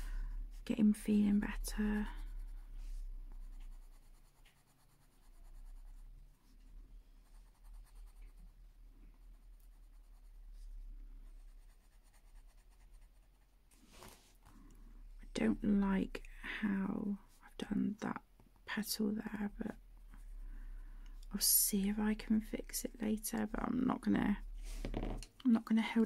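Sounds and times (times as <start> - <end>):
low steady hum: 0.0 - 26.0
pencil rubbing on paper: 0.5 - 14.2.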